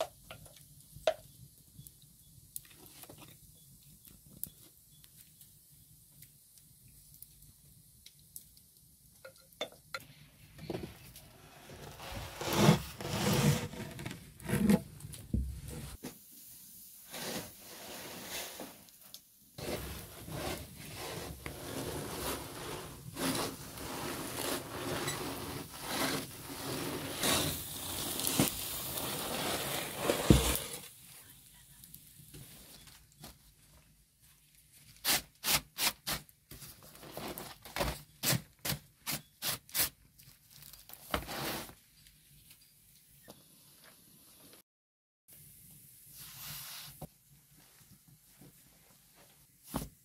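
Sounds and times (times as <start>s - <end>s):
utensils scraping wooden boards: 11.6s - 14.8s, 19.6s - 30.8s.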